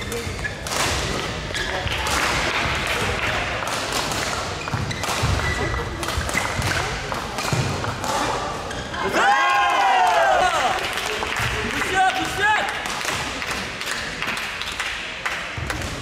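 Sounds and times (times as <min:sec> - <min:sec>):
rackets striking shuttlecock: 0:00.0 - 0:08.5.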